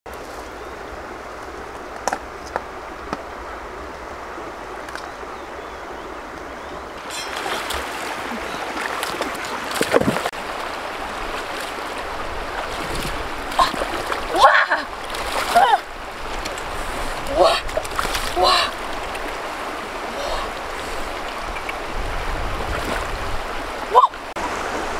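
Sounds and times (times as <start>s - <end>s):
stream water gurgling over rocks: 0.7s - 24.9s
water splash: 7.0s - 24.9s.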